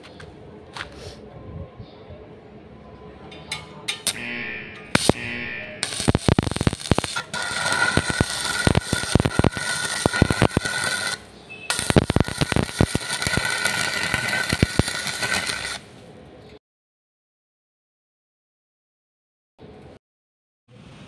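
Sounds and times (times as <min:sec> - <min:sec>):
welding arc crackling: 0:04.0 - 0:16.0.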